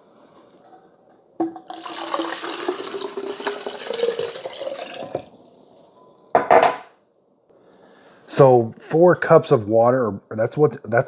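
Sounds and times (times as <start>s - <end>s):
water pouring into a pitcher: 1.4s - 5.4s.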